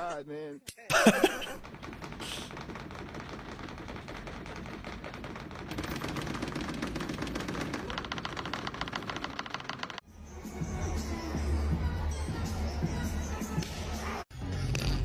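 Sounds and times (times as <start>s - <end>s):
pen tips tapping on paper: 1.6s - 10.0s.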